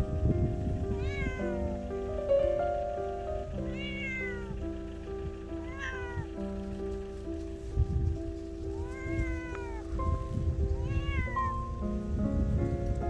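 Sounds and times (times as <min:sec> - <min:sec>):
cat meowing: 0:00.8 - 0:01.8, 0:03.6 - 0:04.6, 0:05.6 - 0:06.4, 0:08.7 - 0:11.8.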